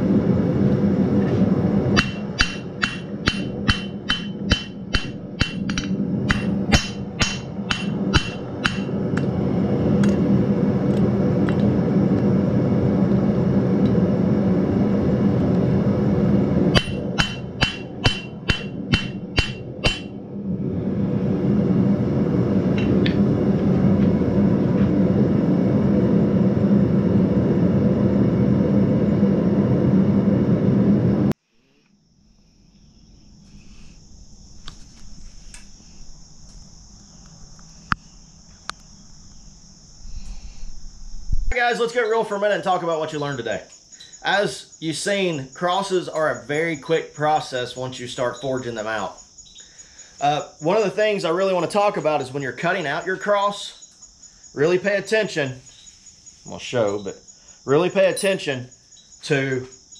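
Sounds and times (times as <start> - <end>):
loud steady low hum: 0.0 - 31.4
hammer striking hot steel on anvil: 1.9 - 9.3, 16.7 - 20.2
faint high steady tone: 41.5 - 51.0, 51.6 - 59.9.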